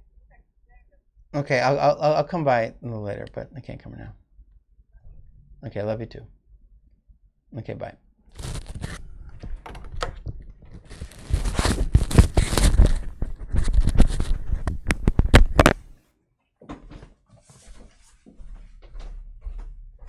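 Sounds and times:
knocks and shuffling: 0:08.4 - 0:16.0, 0:16.6 - 0:19.8.

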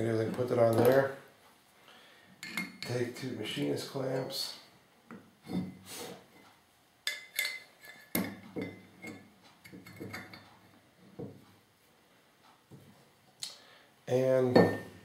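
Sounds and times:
metal clamps clinking: 0:02.4 - 0:03.0, 0:07.1 - 0:10.5, 0:14.5 - 0:15.0.

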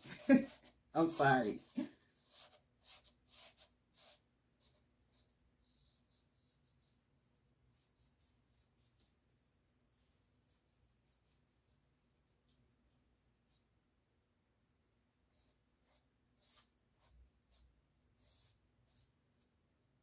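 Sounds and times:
fingertip rubbing paint on canvas: 0:15.3 - 0:19.1.

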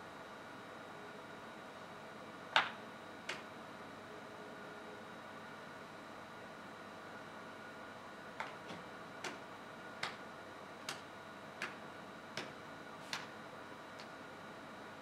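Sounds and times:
sharp rhythmic clicks: 0:10.0 - 0:10.2, 0:10.9 - 0:11.8.

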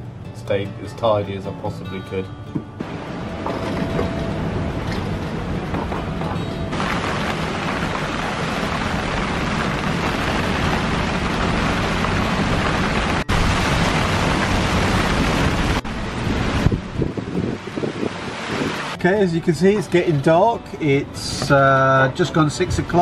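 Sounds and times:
storm wind and rain: 0:02.8 - 0:19.1.

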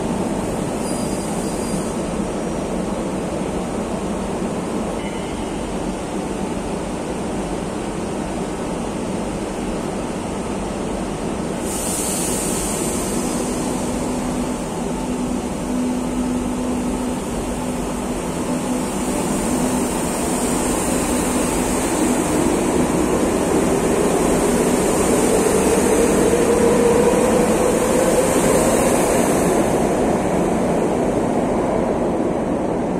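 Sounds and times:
train high hiss: 0:00.0 - 0:02.5, 0:11.3 - 0:30.1.

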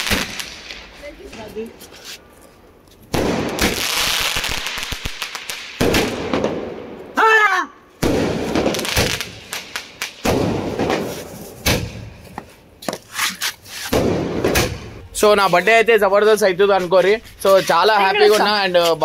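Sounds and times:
fireworks banging and hissing: 0:00.0 - 0:02.3, 0:03.0 - 0:07.0, 0:08.0 - 0:19.0.

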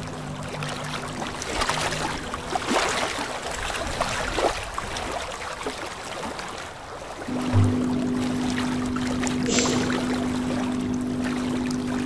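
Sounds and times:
aquarium air bubbling: 0:07.3 - 0:12.0.

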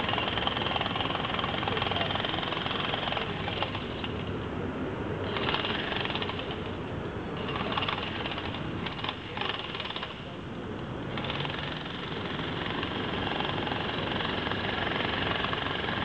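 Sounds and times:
mini excavator engine running: 0:00.0 - 0:16.0
rapid hammering rattle: 0:11.1 - 0:16.0.

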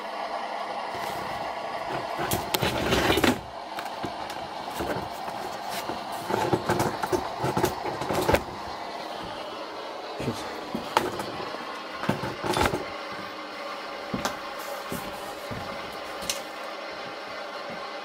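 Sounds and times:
rustling and knocks handling tripod: 0:01.9 - 0:08.6.

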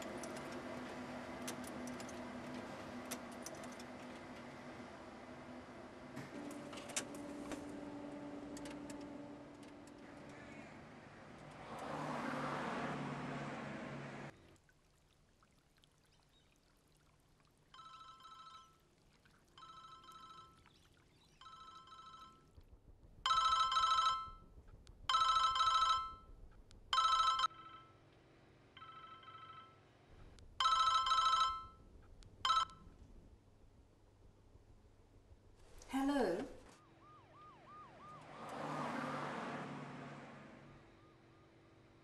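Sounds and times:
telephone ringing: 0:17.8 - 0:18.8, 0:19.6 - 0:20.6, 0:21.4 - 0:22.6, 0:23.3 - 0:24.5, 0:25.1 - 0:26.3, 0:27.0 - 0:28.1, 0:28.8 - 0:29.9, 0:30.6 - 0:32.9.

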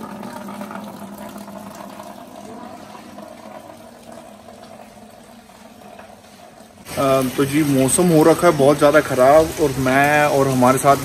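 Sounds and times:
heavy rain: 0:06.8 - 0:11.0.

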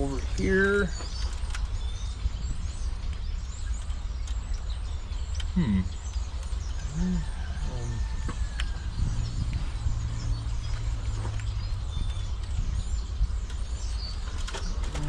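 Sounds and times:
faint birds chirping: 0:00.0 - 0:15.0
low outdoor rumble: 0:00.0 - 0:15.0
short low voice-like sounds: 0:05.5 - 0:06.0, 0:06.8 - 0:08.2.

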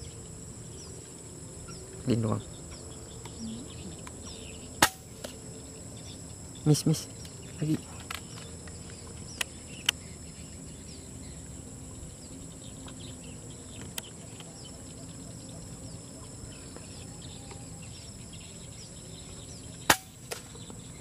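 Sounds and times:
crickets chirping: 0:00.0 - 0:21.0
air rifle shot: 0:04.8 - 0:05.2, 0:19.9 - 0:20.5.

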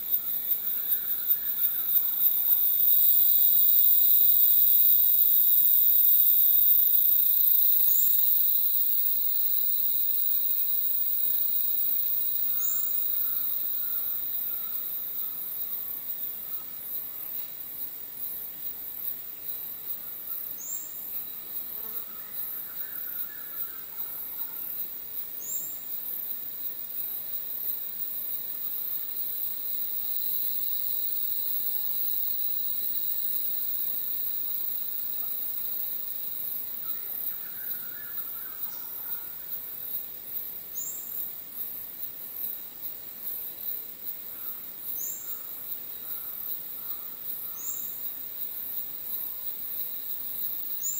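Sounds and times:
insects buzzing: 0:00.0 - 0:50.9.

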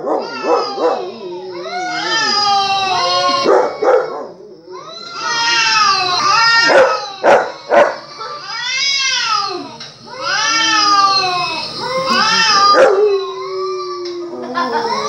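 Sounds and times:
dog barking: 0:00.0 - 0:01.1, 0:03.5 - 0:04.3, 0:06.7 - 0:08.4, 0:12.8 - 0:13.1
dog howling and whining: 0:00.0 - 0:15.0.

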